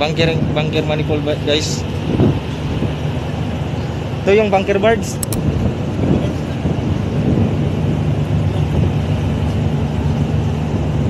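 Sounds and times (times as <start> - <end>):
ship machinery drone: 0.0 - 11.0
wind on microphone: 1.8 - 4.1, 5.0 - 11.0.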